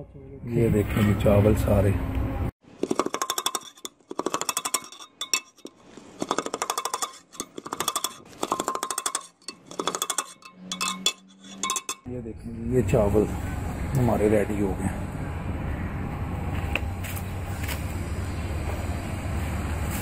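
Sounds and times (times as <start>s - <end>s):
metal spatula scraping metal pot: 2.8s - 12.1s.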